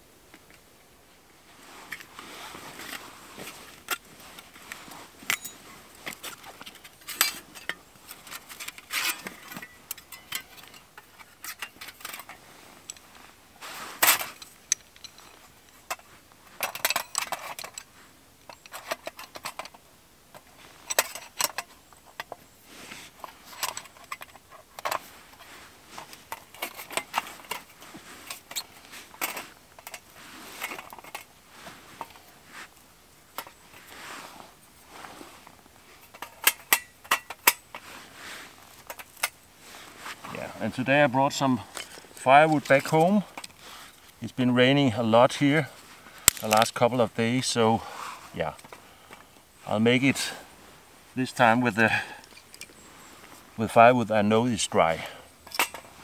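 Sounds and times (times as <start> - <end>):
metal rods clinking and rattling: 5.2 - 13.0, 14.0 - 17.9, 36.0 - 37.8, 54.8 - 56.0.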